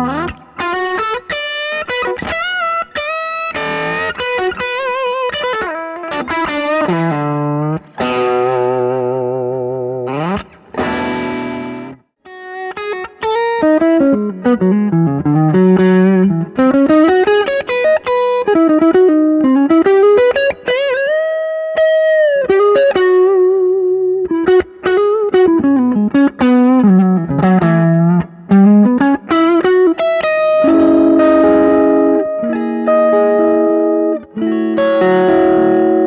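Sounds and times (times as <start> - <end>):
electric guitar chords ringing: 0.0 - 36.0
electric guitar lead runs: 22.6 - 36.0.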